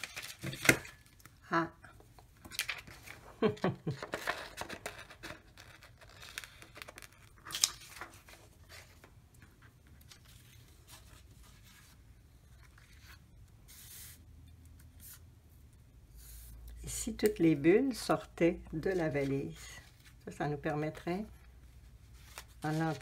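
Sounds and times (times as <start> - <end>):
paper rustling: 2.4 - 14.2, 21.8 - 23.0.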